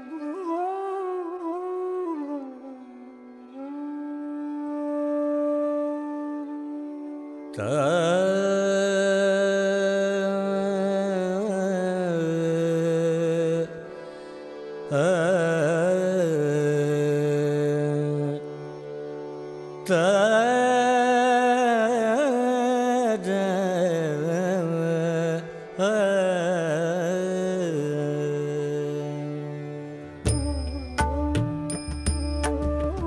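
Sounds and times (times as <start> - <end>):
soft musical accompaniment: 0.0 - 9.5, 27.5 - 33.0
man singing devotional song: 7.6 - 13.8, 14.9 - 18.5, 19.9 - 30.5.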